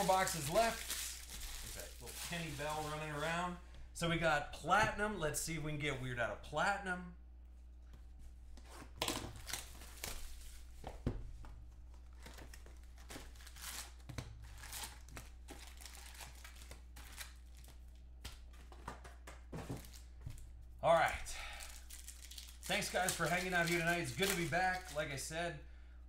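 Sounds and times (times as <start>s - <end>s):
foil wrappers crinkling: 0.0s - 3.2s, 12.1s - 18.0s, 21.3s - 25.4s
low steady hum: 0.0s - 26.0s.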